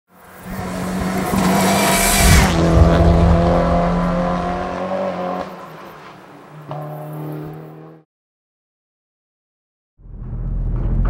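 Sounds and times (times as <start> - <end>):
race car passing at speed: 0.2 - 8.0.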